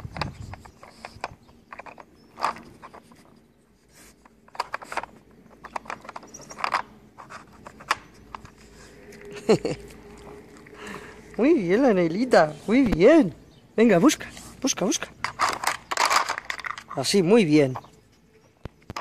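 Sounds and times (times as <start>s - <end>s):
plastic puzzle pieces clicking: 0.1s - 3.2s, 4.2s - 8.6s, 15.2s - 17.2s.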